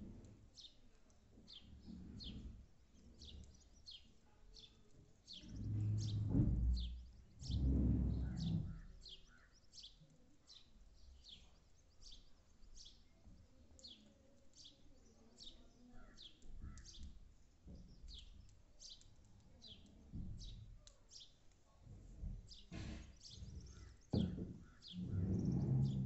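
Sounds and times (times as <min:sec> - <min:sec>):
sparrow chirping: 0:03.2 - 0:07.6, 0:08.2 - 0:13.2, 0:22.5 - 0:26.0
faint low thumps: 0:05.5 - 0:08.9, 0:22.2 - 0:26.0
low rumble: 0:25.0 - 0:26.0.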